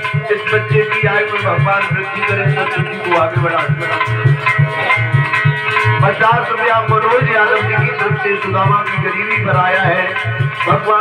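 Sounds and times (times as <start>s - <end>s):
held melody notes: 0.0s - 11.0s
steady drum beat: 0.0s - 11.0s.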